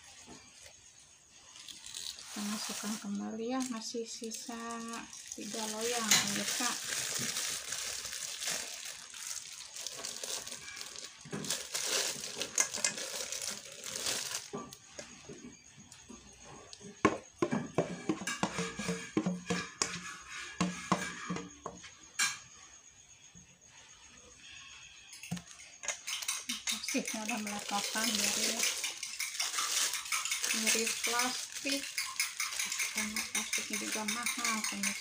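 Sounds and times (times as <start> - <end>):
spoon clinking against metal bowl: 4.7 - 7.4, 25.2 - 35.0.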